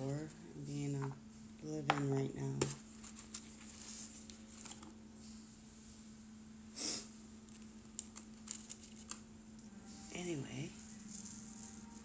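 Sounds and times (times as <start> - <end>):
steady low hum: 0.0 - 12.0
person's sharp nasal breath: 6.7 - 7.1.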